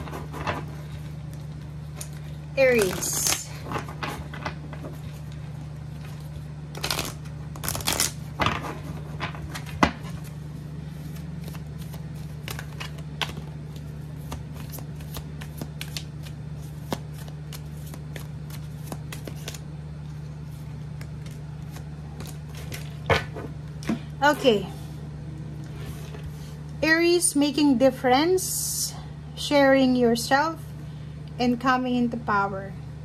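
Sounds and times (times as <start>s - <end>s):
cards shuffled by hand: 0.0s - 23.3s
steady low hum: 0.0s - 33.0s
card slaps and riffling: 11.0s - 19.7s.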